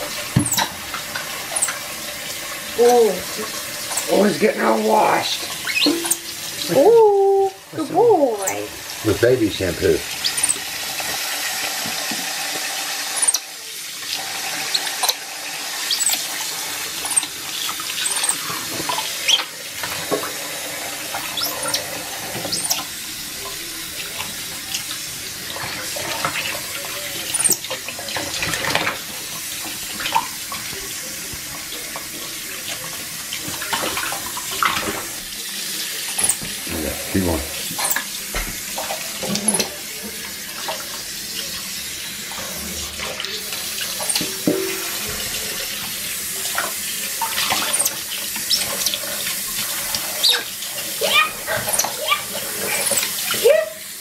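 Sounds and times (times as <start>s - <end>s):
tap running into a steel sink: 0.0s - 2.6s, 5.6s - 6.6s, 36.0s - 36.6s, 37.6s - 50.4s.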